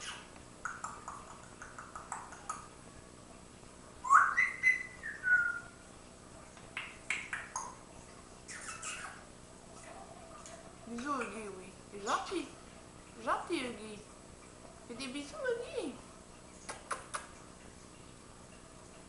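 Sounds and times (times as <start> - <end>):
parrot whistling: 4.0 - 5.8.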